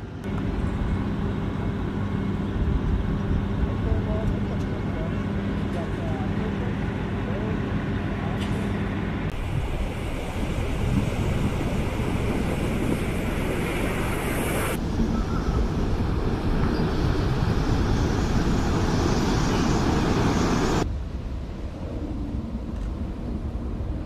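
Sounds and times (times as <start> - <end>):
low engine rumble: 0.0 - 24.0
wind buffeting microphone: 9.3 - 24.0
surf breaking on beach: 9.4 - 14.8.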